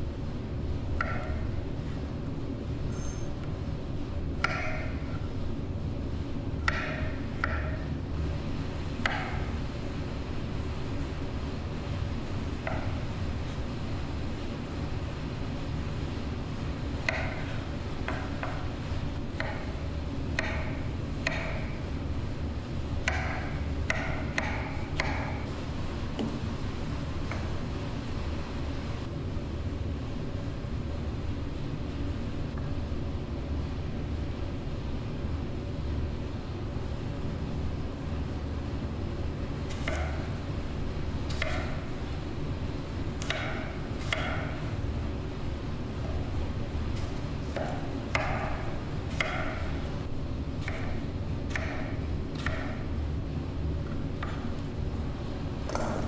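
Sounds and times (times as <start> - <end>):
low background hum: 0.0 - 56.0
knife chopping apple on board: 1.0 - 1.4, 4.4 - 5.0, 6.6 - 7.8, 9.0 - 9.5, 17.0 - 18.7, 20.3 - 21.8, 23.0 - 25.4, 39.7 - 40.3, 41.3 - 41.8, 43.2 - 44.6, 47.0 - 49.8, 50.6 - 52.8, 53.9 - 54.5.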